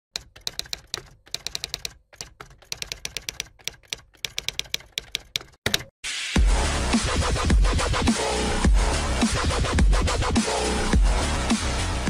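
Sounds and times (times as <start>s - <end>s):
keyboard typing clicks: 0.1s - 5.9s.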